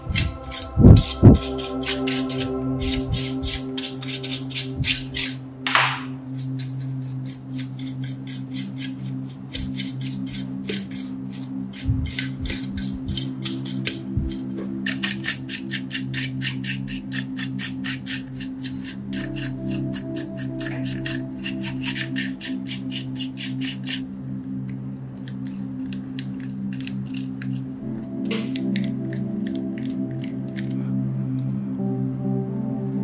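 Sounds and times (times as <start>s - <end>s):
bristle brush scrubbing: 0.0s - 5.4s, 6.3s - 24.1s.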